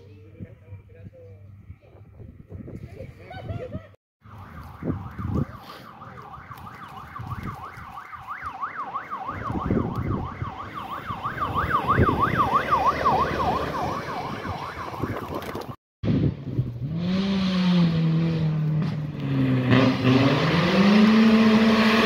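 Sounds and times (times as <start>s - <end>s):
yelp siren: 4.2s - 15.5s
pickup engine and tyres: 4.2s - 22.0s.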